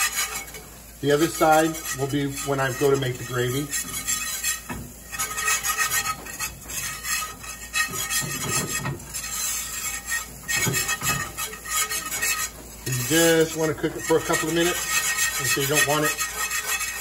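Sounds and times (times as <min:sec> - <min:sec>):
whisk scraping a skillet: 0:00.0 - 0:17.0.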